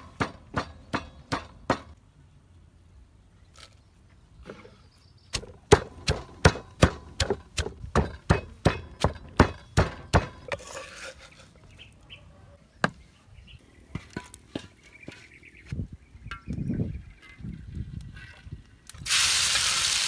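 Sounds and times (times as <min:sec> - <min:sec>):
pestle pounding in wooden mortar: 0:05.4 - 0:10.6.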